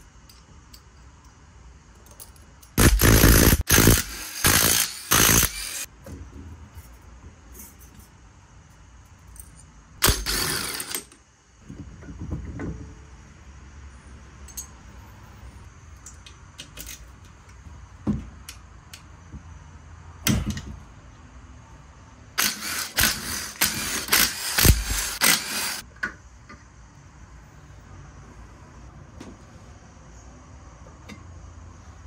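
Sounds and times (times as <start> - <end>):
metal tools clinking: 14.4 - 14.9.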